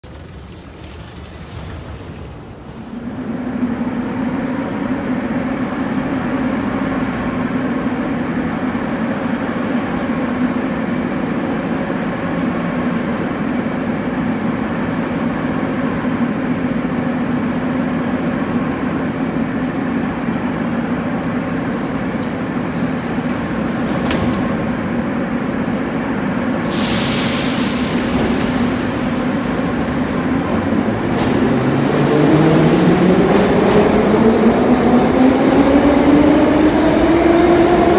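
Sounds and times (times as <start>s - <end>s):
train standing hum: 0.1s - 37.9s
loud hiss of air: 26.6s - 30.0s.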